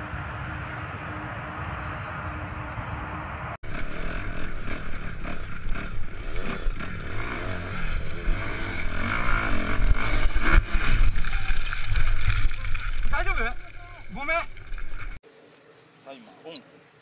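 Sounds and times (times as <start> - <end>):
dirt bike engine revving: 3.6 - 12.2.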